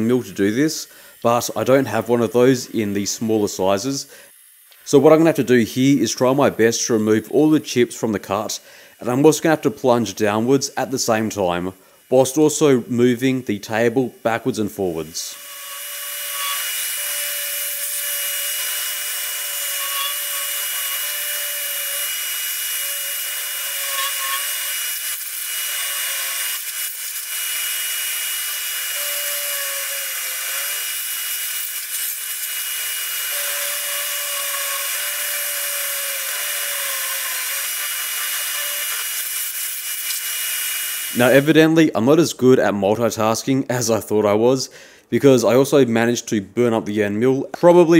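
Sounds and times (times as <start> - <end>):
milling spindle high whine: 10.4 - 39.2
end mill cutting steel: 14.8 - 41.5.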